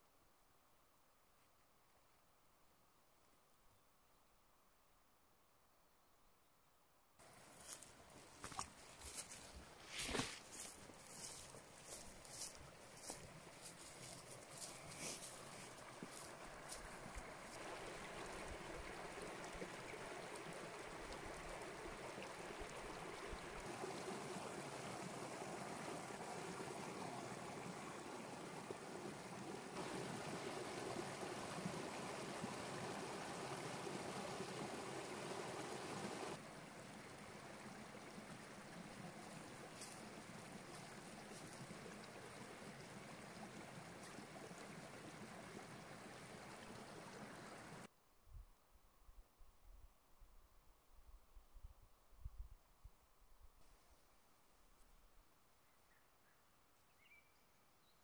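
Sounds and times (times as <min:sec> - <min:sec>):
brook flowing over rocks: 0:07.2 - 0:47.9.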